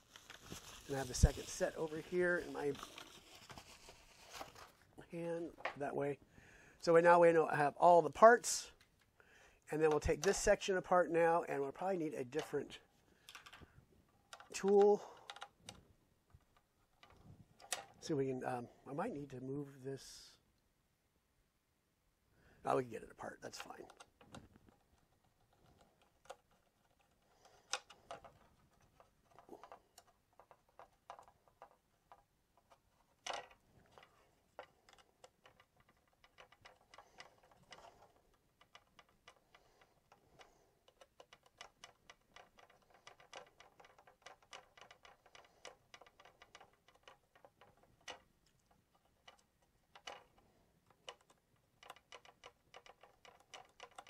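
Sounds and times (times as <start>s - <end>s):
small clicks of handling parts: 8.8s - 9.2s, 12.3s - 18.1s, 23.4s - 54.0s.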